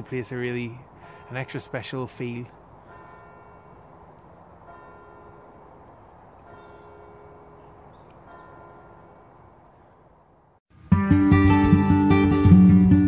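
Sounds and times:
distant church bells ringing: 0.0 - 9.6.

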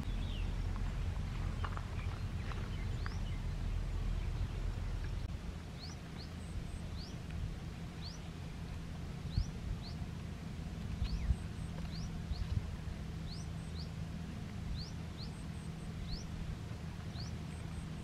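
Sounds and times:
low rumble: 0.0 - 18.0
small bird chirping: 11.0 - 12.6, 14.7 - 16.4, 17.1 - 18.0.

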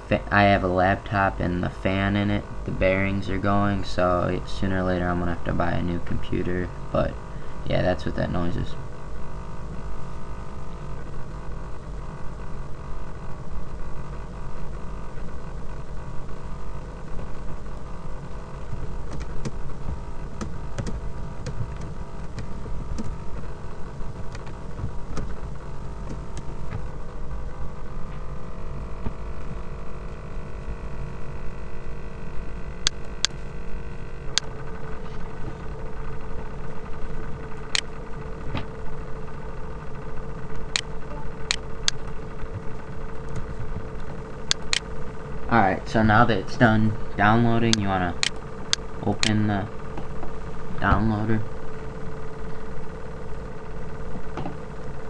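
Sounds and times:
laptop fan humming: 0.0 - 55.0
sharp clicks: 18.7 - 19.6, 20.4 - 23.4, 43.3 - 44.9, 47.7 - 50.1.

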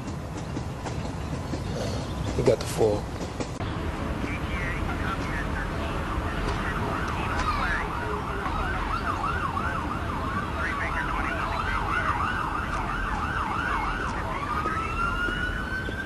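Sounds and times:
police siren: 4.1 - 16.0.

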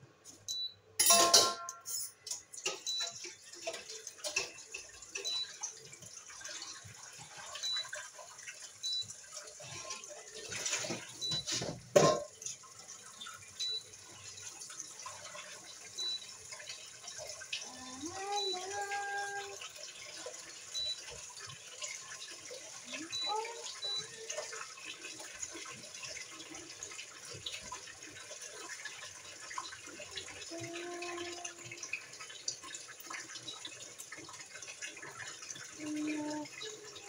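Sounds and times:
pots and utensils clattering: 1.0 - 8.0, 9.4 - 12.8
tap running into sink: 9.8 - 12.6.

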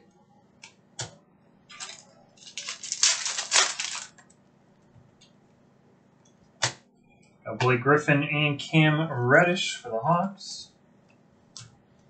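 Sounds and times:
foil wrapper crinkling: 1.7 - 4.3.

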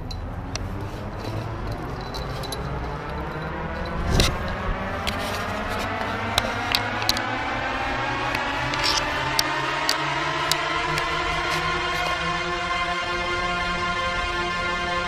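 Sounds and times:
rushing noise rising in pitch: 0.9 - 15.0
camera handling clicks: 8.7 - 9.1.

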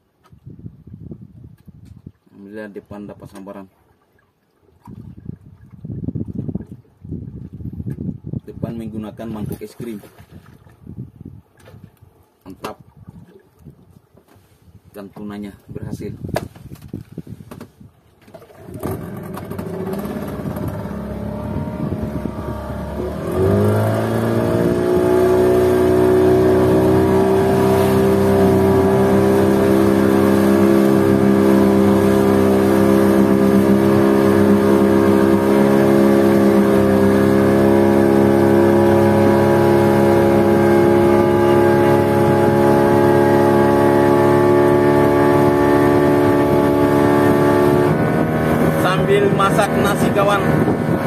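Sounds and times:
boat engine running: 18.3 - 51.0.

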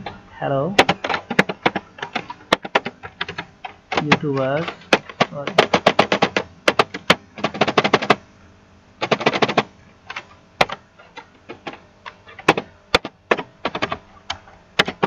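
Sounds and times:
keyboard typing clicks: 0.8 - 8.2.

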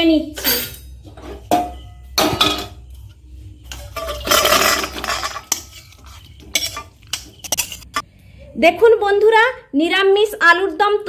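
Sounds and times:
spatula scraping metal pan: 3.7 - 8.0.

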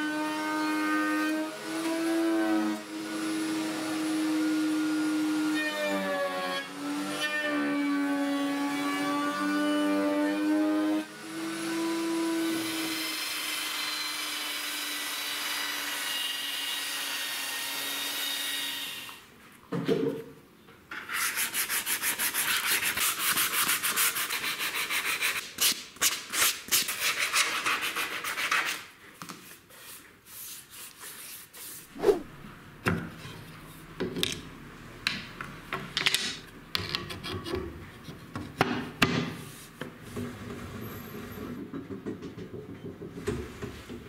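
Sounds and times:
sanding wood by hand: 21.1 - 25.5.

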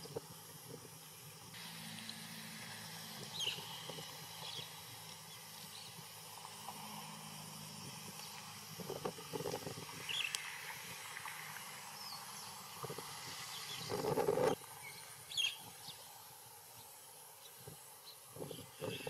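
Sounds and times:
bird chirps: 3.3 - 4.7.

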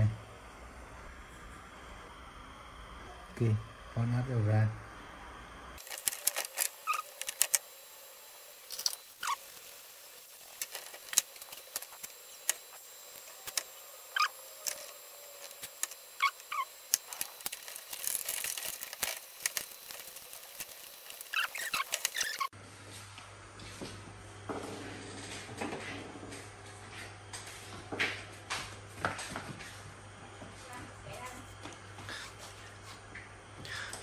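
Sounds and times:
fingers handling circuit board: 10.4 - 22.5.

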